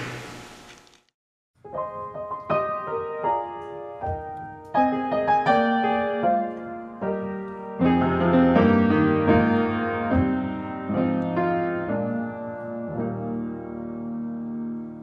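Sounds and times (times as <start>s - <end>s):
upright piano playing hymn: 1.6s - 15.0s.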